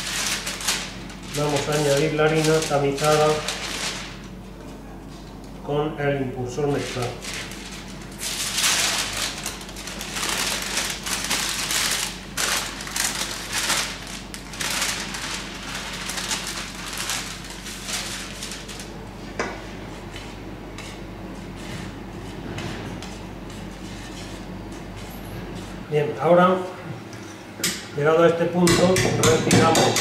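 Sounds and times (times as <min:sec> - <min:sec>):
parchment paper rustling: 0:00.0 - 0:05.3, 0:06.5 - 0:19.0, 0:19.9 - 0:25.8.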